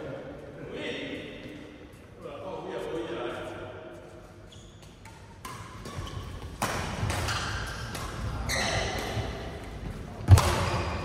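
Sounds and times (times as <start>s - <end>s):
badminton rackets hitting shuttlecock: 4.8s - 11.0s.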